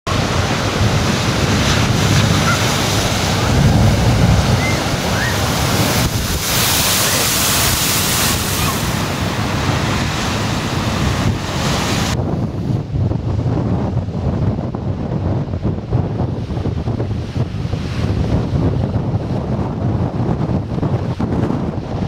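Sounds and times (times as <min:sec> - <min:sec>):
waves crashing on rocks: 0:00.1 - 0:12.2
wind buffeting microphone: 0:00.1 - 0:22.0.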